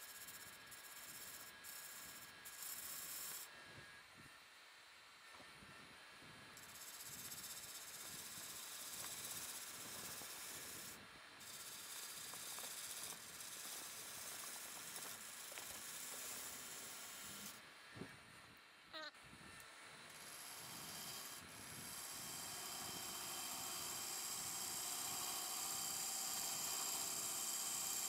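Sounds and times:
lathe tool cutting wood: 6.6 - 17.6, 20.1 - 28.0.

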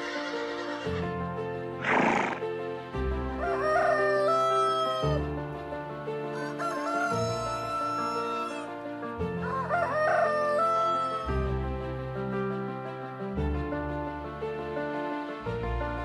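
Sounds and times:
soft background music: 0.0 - 16.0
rooster crowing: 3.4 - 5.2, 6.3 - 8.7, 9.4 - 11.4.

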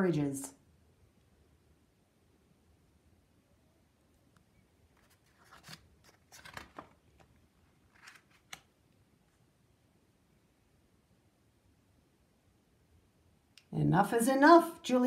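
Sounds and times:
paper page turning: 4.9 - 8.7.

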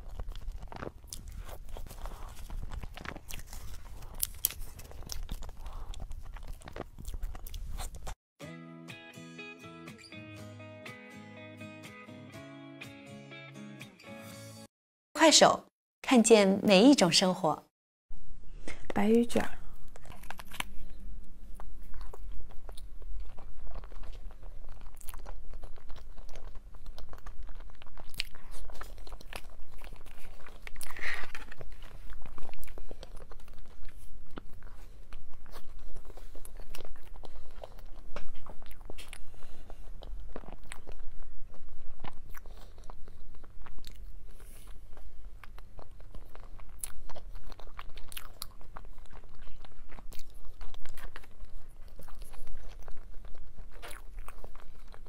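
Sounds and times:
person chewing cake: 0.0 - 8.2, 19.6 - 55.0.

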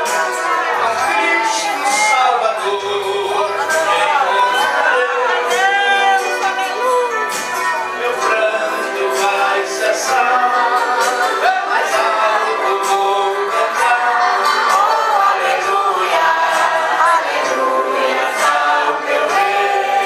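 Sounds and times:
man singing into a microphone: 0.8 - 15.0.

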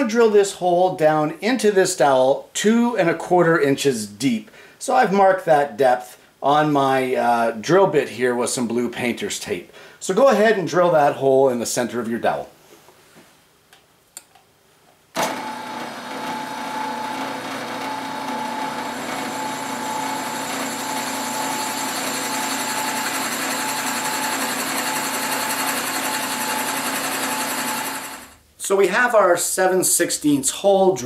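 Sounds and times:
drill bit boring into wood: 15.2 - 28.4
drill press motor running: 15.2 - 28.4.

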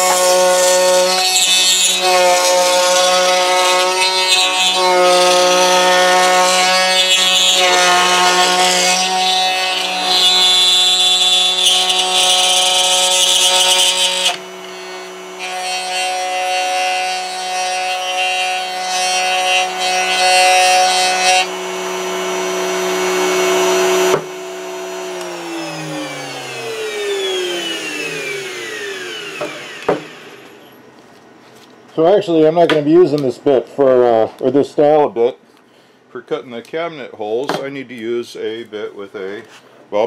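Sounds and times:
router cutting wood: 0.0 - 30.8
router spinning down: 21.5 - 30.7.

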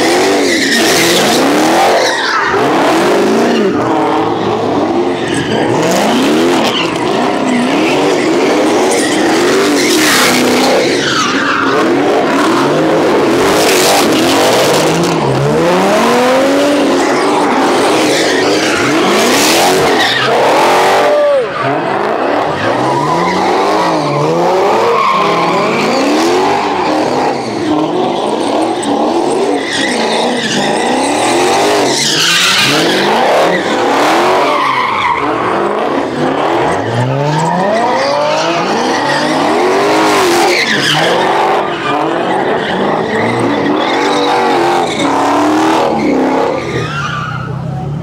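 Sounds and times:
car engines revving: 0.0 - 48.0
tyre screeches: 17.0 - 35.6.

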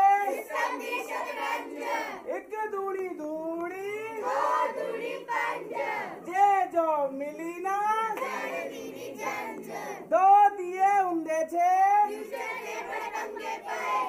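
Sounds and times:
children singing: 0.0 - 2.2, 4.2 - 6.2, 8.2 - 10.1, 12.2 - 14.0.

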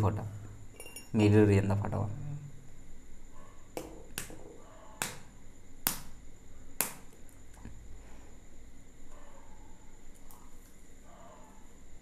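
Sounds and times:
egg shell tapping: 3.8 - 6.2.

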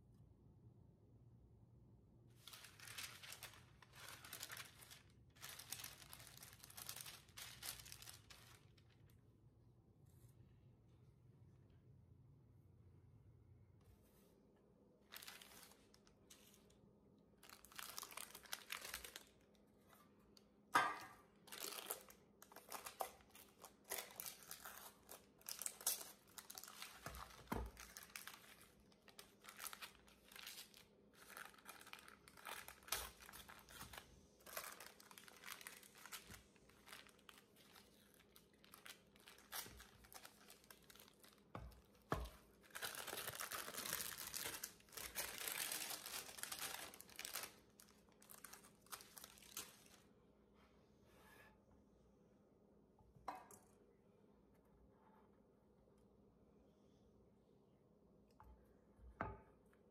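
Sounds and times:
parchment paper crinkling: 2.4 - 9.2, 15.1 - 16.8, 17.4 - 19.6, 21.3 - 50.1.

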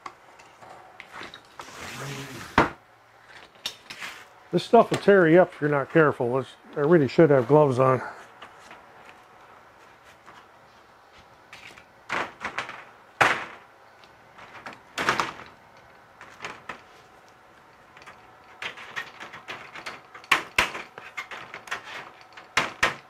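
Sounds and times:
wire mesh rattling and scraping: 14.3 - 23.0.

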